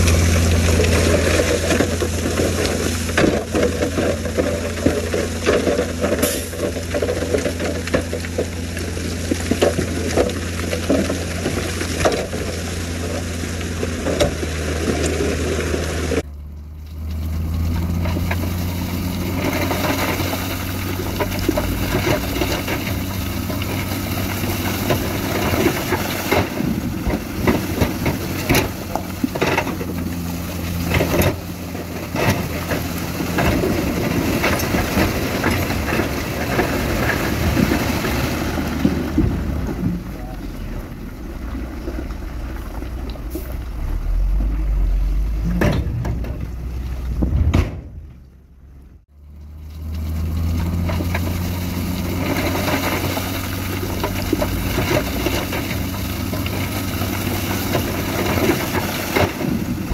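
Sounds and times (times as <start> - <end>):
stone and rock clattering: 0.0 - 15.4, 17.1 - 43.4
diesel machinery running: 0.0 - 59.9.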